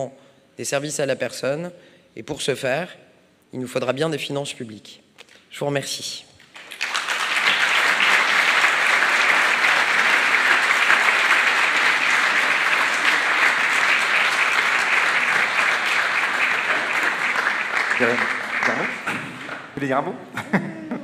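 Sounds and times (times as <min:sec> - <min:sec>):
audience applauding: 0:06.4 - 0:19.8.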